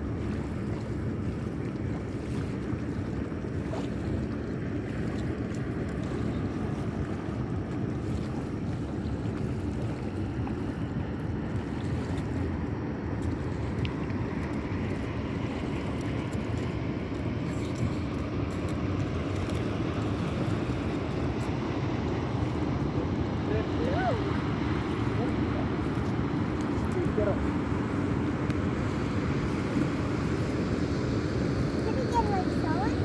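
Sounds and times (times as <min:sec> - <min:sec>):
distant motorboat drone: 0:00.0 - 0:33.0
wind rumble on microphone: 0:00.0 - 0:33.0.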